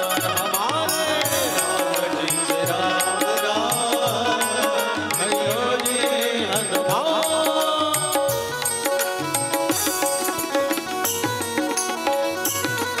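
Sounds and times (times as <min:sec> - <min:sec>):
gliding melody: 0:00.7 - 0:07.7.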